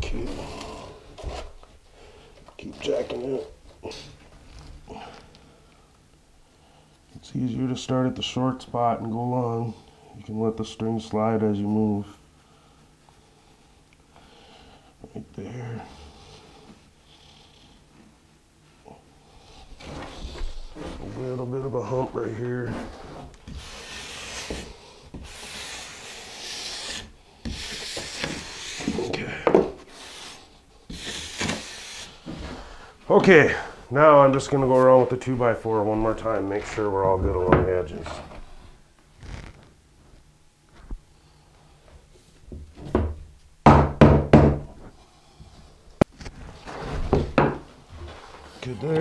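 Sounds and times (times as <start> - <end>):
rough scraping: 19.8 - 29.2
hand tool rasping across mortar: 22.7 - 29.2, 29.9 - 32.4.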